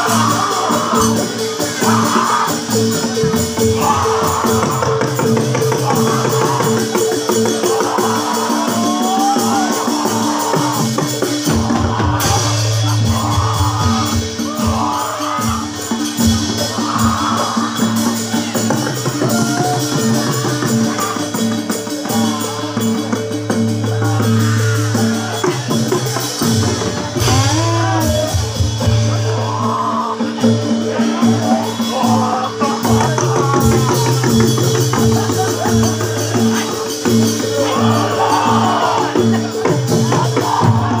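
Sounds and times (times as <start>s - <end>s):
jingling percussion: 0.0s - 41.0s
person singing: 0.0s - 41.0s
pitched percussion with low drones: 0.0s - 41.0s.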